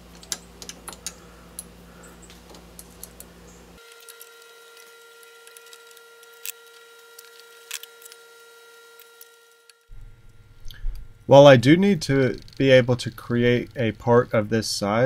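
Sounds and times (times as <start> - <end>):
lathe motor whine and hum: 3.6 - 15.0.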